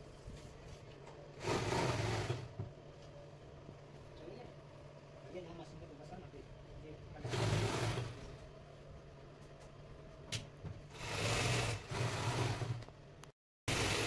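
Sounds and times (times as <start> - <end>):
electric sewing machine running: 1.4 - 2.5, 7.2 - 8.3, 10.9 - 12.8, 13.7 - 14.0.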